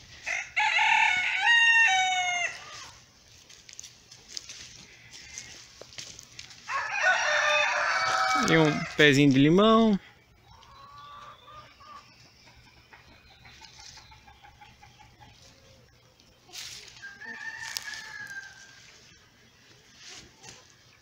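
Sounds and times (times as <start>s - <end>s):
chickens calling: 0.0s - 21.0s
rooster crowing: 0.2s - 3.0s, 6.6s - 9.1s, 16.9s - 18.9s
rustling brush: 16.5s - 20.9s.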